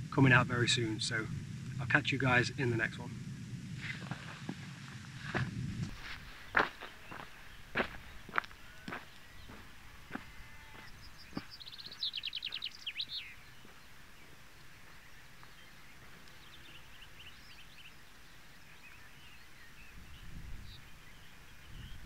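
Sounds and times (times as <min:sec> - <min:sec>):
outdoor background noise: 0:00.0 - 0:22.0
songbird singing: 0:00.0 - 0:22.0.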